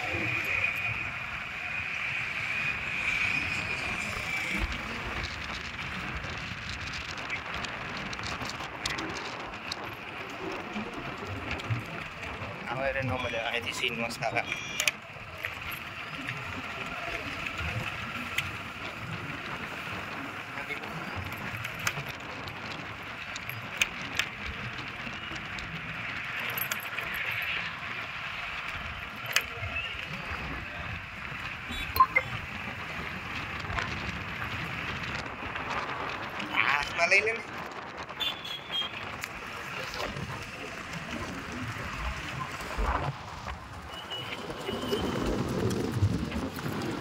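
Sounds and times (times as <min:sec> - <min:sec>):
outdoor road noise hiss: 0:00.0 - 0:12.8
hooves clicking on dirt road: 0:00.0 - 0:47.0.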